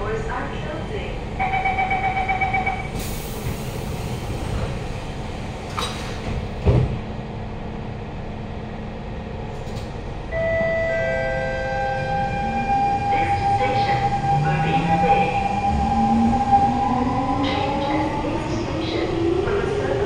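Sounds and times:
door warning beeps: 1.4s - 3.0s
train doors hissing shut: 2.9s - 4.8s.

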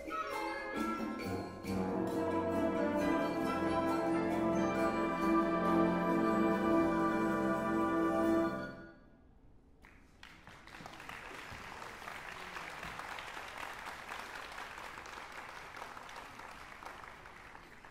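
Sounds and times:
wind band chord: 1.0s - 8.8s
audience applause: 10.1s - 17.9s.

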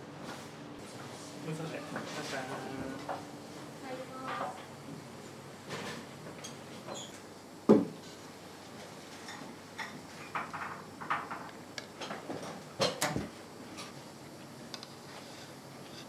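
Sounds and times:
dishes clicking and knocking: 9.3s - 13.1s.

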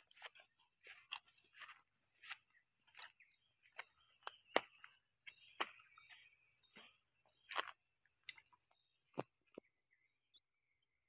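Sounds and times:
footsteps on gravel: 0.0s - 7.8s.

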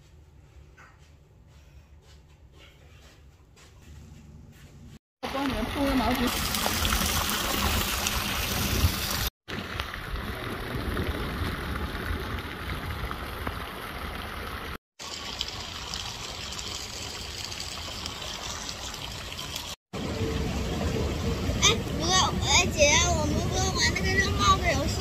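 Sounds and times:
rush of running water: 5.2s - 25.0s.

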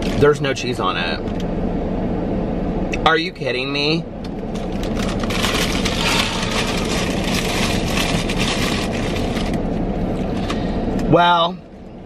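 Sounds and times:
paper packaging crinkling: 4.5s - 9.6s.

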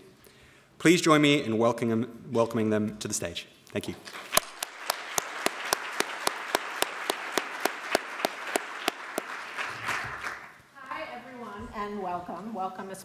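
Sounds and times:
audience applause: 4.2s - 10.6s
person clapping: 4.2s - 10.6s.

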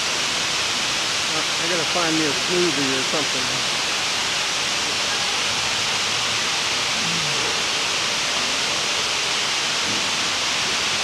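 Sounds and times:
waterfall hiss: 0.0s - 11.0s.

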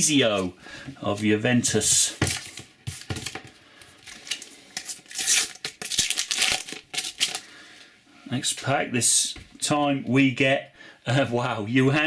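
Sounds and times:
foil wrapper crinkling: 4.0s - 7.5s
sticker packet tearing: 4.1s - 7.4s.

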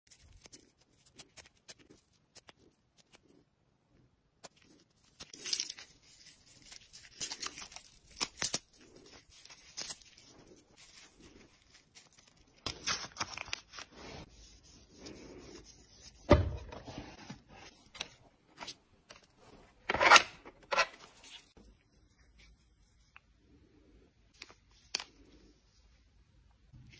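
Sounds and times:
cling film rustling and tearing: 0.1s - 3.2s, 4.5s - 14.3s.

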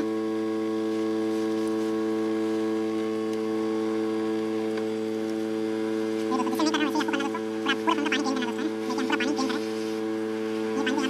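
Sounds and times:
hot air blower humming: 0.0s - 11.0s
person speaking: 6.2s - 10.0s, 10.6s - 11.0s.

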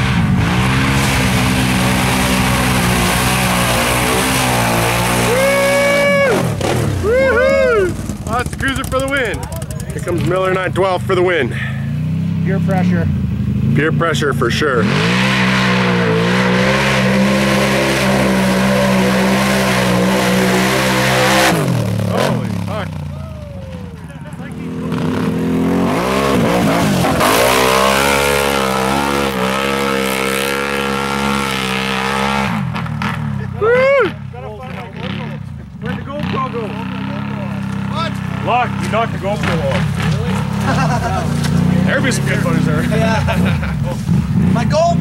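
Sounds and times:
quad engine running hard: 0.0s - 45.0s
person yelling: 5.2s - 8.0s, 23.1s - 24.1s, 33.5s - 34.3s.

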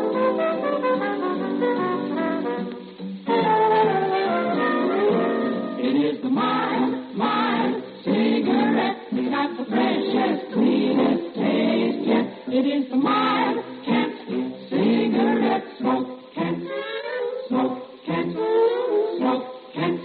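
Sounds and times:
group singing together: 5.5s - 20.0s.

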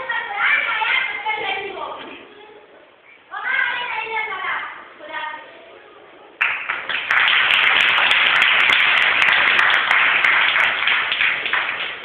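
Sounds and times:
audience applause: 6.4s - 12.0s.

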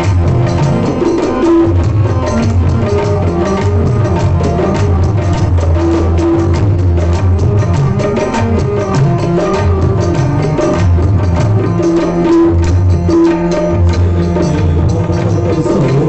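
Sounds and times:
tabla playing: 0.0s - 16.0s.

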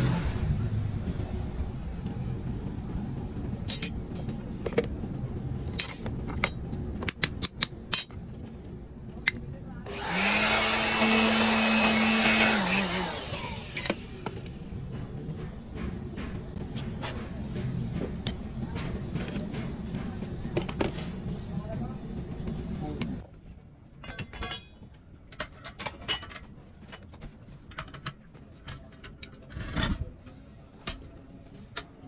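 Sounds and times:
small motor machine humming: 9.9s - 14.2s.

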